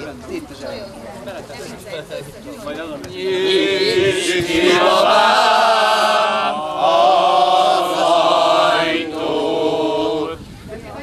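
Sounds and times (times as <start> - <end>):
men singing folk song together: 3.1 - 10.4.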